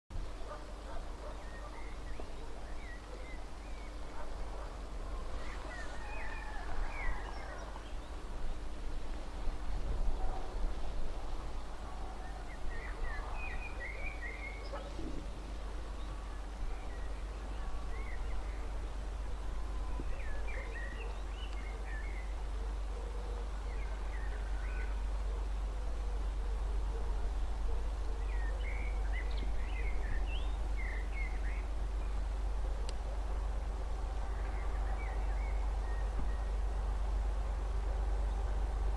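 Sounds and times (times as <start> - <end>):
low steady rumble: 0.2 - 38.9
songbirds chirping: 0.2 - 38.9.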